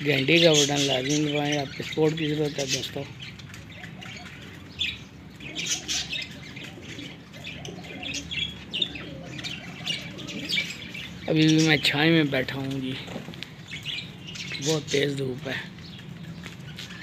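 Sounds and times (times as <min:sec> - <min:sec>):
birds chirping and squawking: 0:00.0 - 0:17.0
pigeons cooing: 0:00.0 - 0:17.0.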